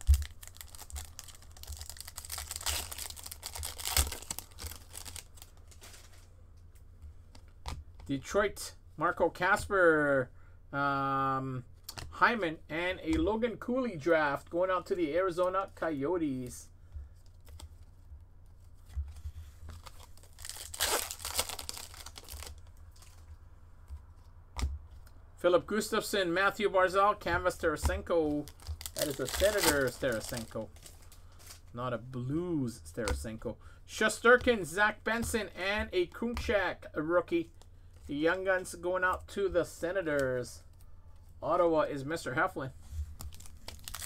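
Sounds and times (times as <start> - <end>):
foil wrapper crinkling and tearing: 0.0 - 6.2, 19.7 - 23.2, 28.4 - 31.7, 43.2 - 44.0.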